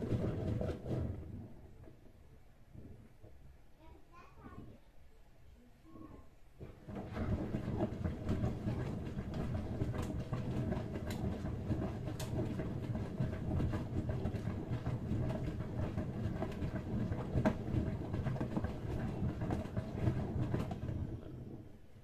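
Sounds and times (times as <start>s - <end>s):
washing machine drum humming: 0.0s - 2.0s, 6.6s - 22.0s.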